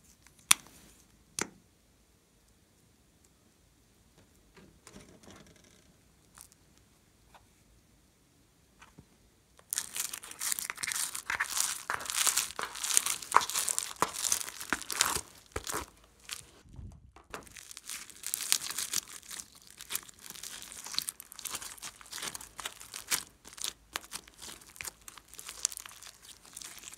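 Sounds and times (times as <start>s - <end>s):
foam-bead slime crinkling: 6.2s - 6.6s, 9.6s - 16.6s, 17.3s - 26.9s.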